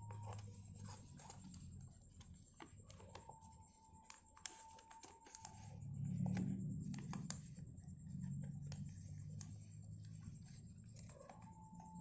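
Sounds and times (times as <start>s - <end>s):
paper folding and creasing: 0.0s - 11.6s
low hum: 5.4s - 12.0s.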